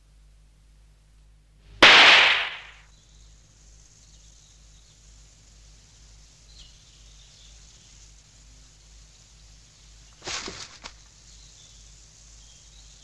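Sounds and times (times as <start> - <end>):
pistol shot: 1.8 - 2.8.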